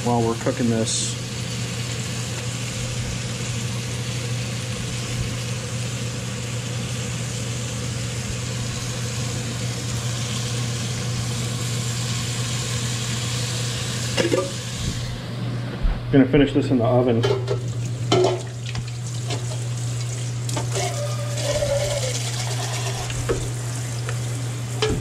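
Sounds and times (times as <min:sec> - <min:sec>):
low motor hum: 0:01.2 - 0:16.8, 0:17.6 - 0:25.0.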